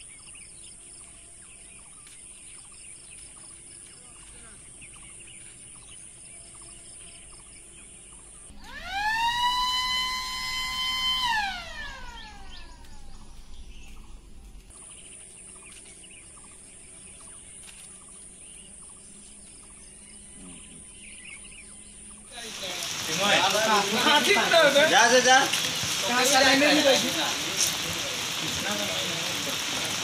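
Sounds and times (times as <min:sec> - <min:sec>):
birds chirping: 0:00.0 - 0:30.0
steady high hiss: 0:00.0 - 0:30.0
electronic alarm siren wail: 0:08.5 - 0:13.6.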